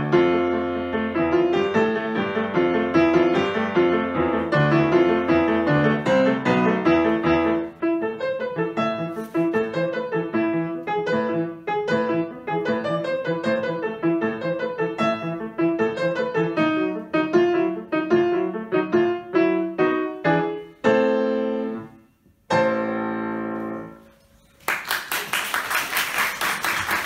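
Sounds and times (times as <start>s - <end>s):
grand piano chords: 0.0s - 24.4s
applause: 24.6s - 27.0s.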